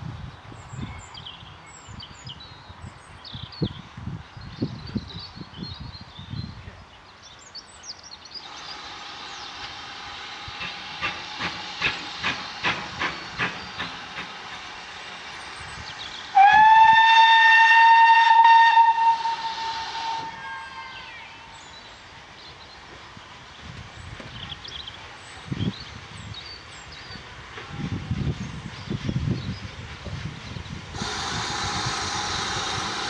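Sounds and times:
steam hiss: 8.3 - 33.0
locomotive exhaust chuffs: 8.4 - 21.7, 28.4 - 33.0
steam whistle blast: 16.3 - 21.6.

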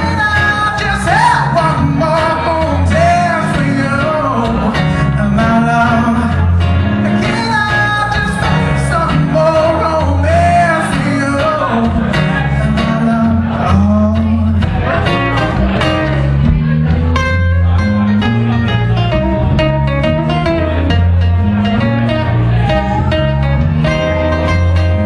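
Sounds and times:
man singing: 0.0 - 16.2
electric bass guitar: 0.0 - 25.0
strummed acoustic guitar: 0.0 - 25.0.

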